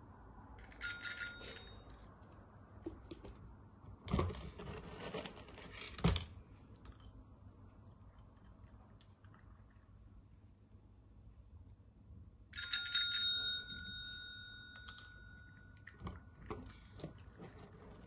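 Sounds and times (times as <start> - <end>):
desk service bell ringing: 0.8 - 2.0, 12.6 - 15.9.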